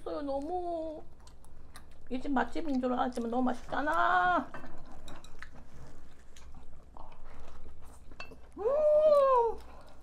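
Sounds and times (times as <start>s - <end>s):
chewing: 0.0s - 10.0s
person humming mmm: 8.6s - 9.6s.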